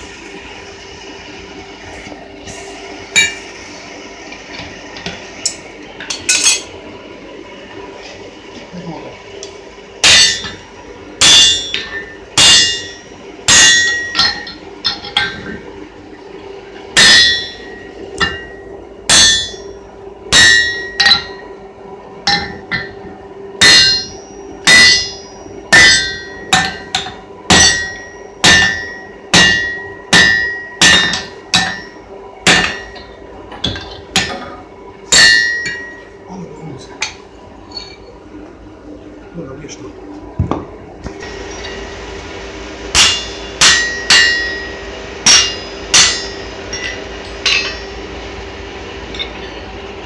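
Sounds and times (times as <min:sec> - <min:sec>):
hammer clanging on anvil: 0:05.5 - 0:06.7, 0:10.0 - 0:10.6, 0:11.2 - 0:15.5, 0:17.0 - 0:21.5, 0:22.3 - 0:23.0, 0:23.6 - 0:36.1, 0:42.9 - 0:48.0.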